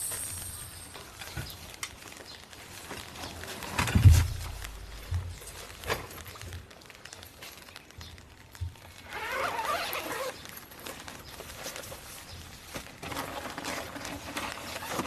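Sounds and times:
fabric bag rustling and scraping: 9.0 - 15.0.

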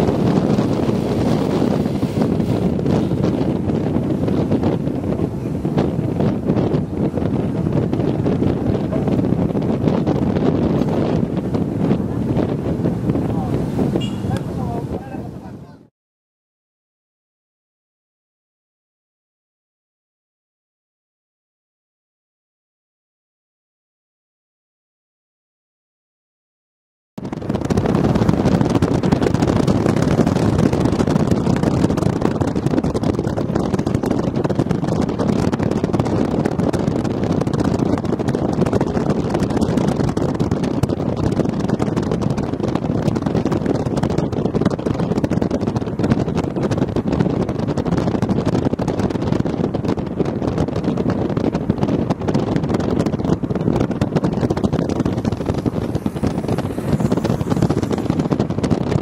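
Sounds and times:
vehicle engine and road noise: 0.0 - 15.9, 27.2 - 59.0
wind buffeting microphone: 0.0 - 15.9, 27.2 - 59.0.

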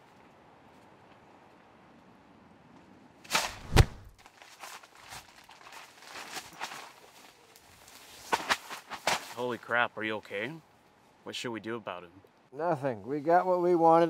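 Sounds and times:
scuffling and shuffling: 3.3 - 9.6
sharp knock: 3.4 - 4.1
heavy thud: 3.5 - 4.1.

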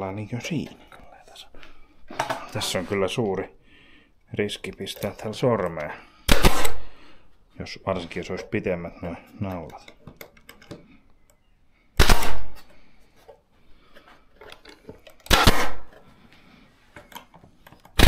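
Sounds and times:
faint handling noise: 0.0 - 3.6, 4.3 - 6.0, 7.4 - 11.5, 12.6 - 15.3, 15.9 - 18.0
nail gun firing into wood: 6.3 - 6.9, 12.0 - 12.7, 15.2 - 15.9.

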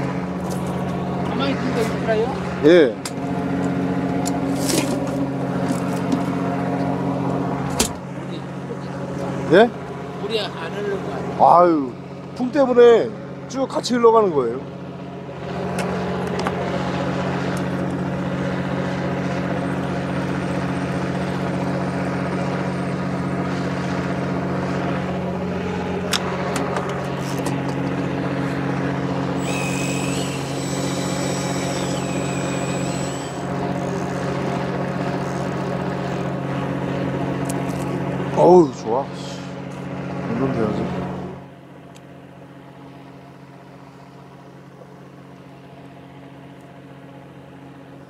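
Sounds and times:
boat engine drone: 0.0 - 48.0
thin high whine: 29.3 - 36.2.

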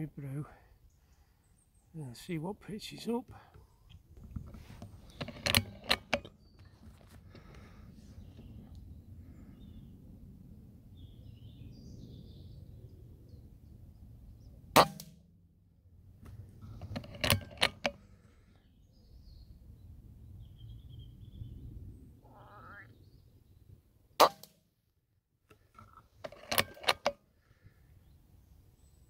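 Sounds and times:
rifle lever clicks and knocks: 3.5 - 7.7, 14.8 - 15.2, 16.2 - 18.1, 25.5 - 27.2
air rifle shot: 14.8 - 15.2.

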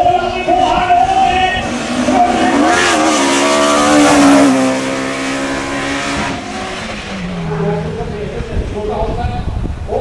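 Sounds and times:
race car engine passing by: 1.6 - 8.9.

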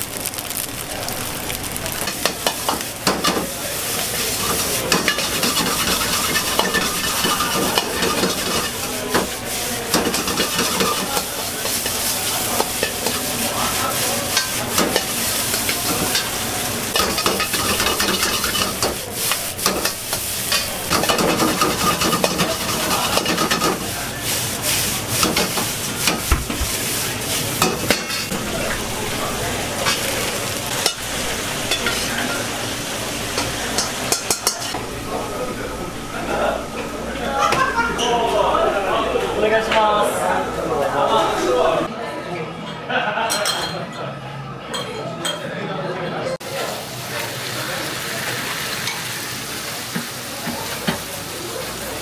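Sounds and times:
rice sizzling in a wok: 0.0 - 34.8, 46.4 - 52.0
metal ladle scraping wok: 2.0 - 13.3, 14.3 - 23.9.

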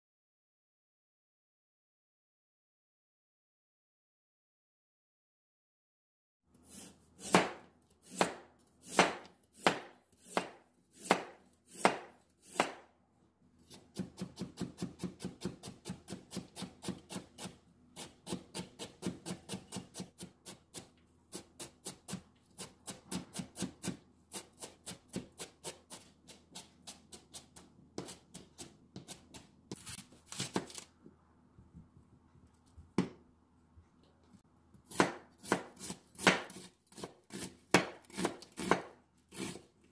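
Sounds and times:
knife chopping on cutting board: 6.7 - 12.9, 13.7 - 30.8, 34.9 - 39.7.

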